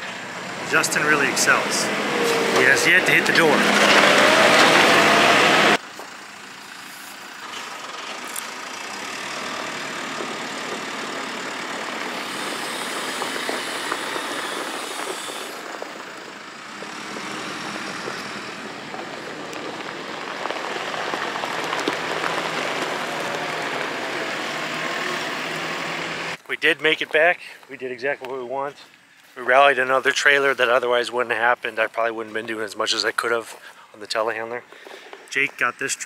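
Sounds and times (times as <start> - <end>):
diesel engine running: 0.0 - 26.5.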